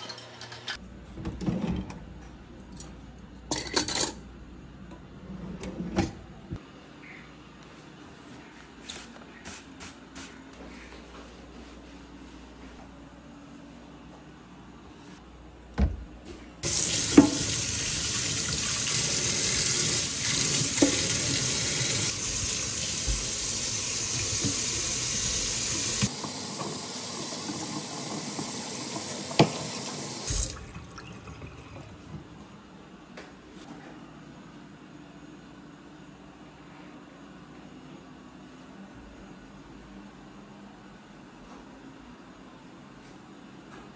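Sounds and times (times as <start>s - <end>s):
faucet running into metal sink: 16.6s - 31.8s.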